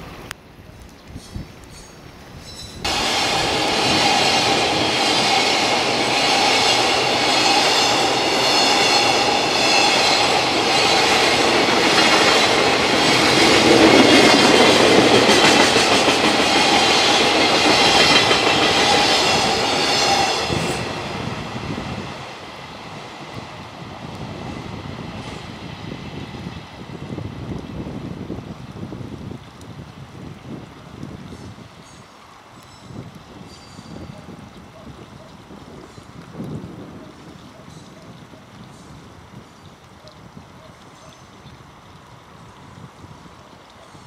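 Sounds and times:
freight train wheels on rails: 1.2 - 28.1
wheels clacking over rail joints: 2.6 - 21.2.

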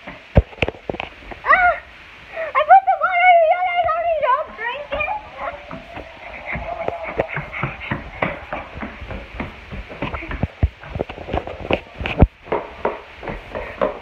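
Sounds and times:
running footsteps: 3.5 - 14.0
footsteps on wooden stairs: 3.8 - 14.0.

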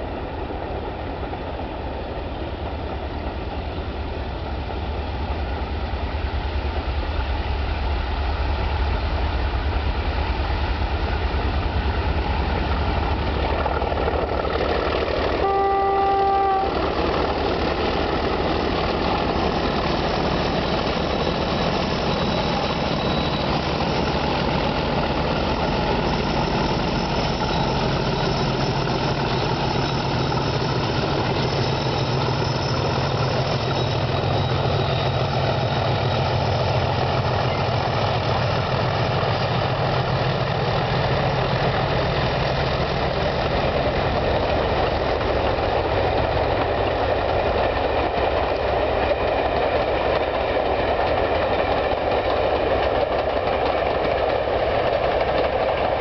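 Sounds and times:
diesel locomotives working hard: 0.0 - 56.0.

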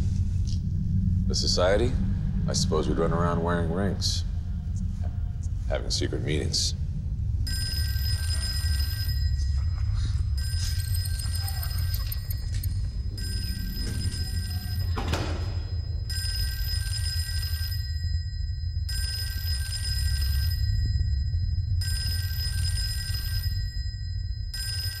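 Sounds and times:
low rumble: 0.0 - 24.9
telephone bell ringing: 7.5 - 25.0.

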